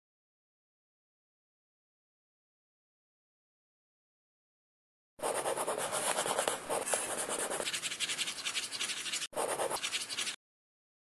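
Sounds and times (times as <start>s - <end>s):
pen scribbling on paper: 5.2s - 10.4s.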